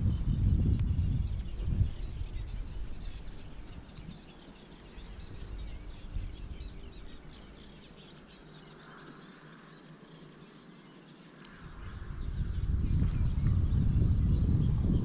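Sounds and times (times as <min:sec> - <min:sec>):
small birds chirping: 0:00.0 - 0:15.0
low rumble: 0:11.6 - 0:15.0.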